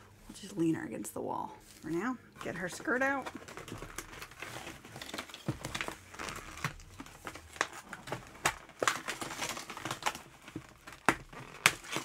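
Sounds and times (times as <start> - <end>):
packaging crinkling: 2.5 - 12.0.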